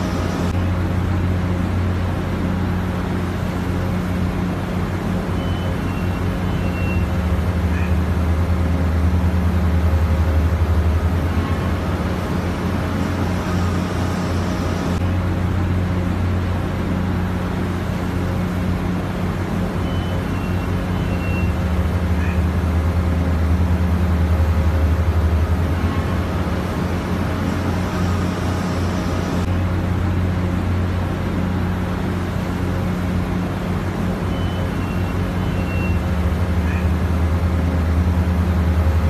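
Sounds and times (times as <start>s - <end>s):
crane machinery humming: 0.0s - 39.0s.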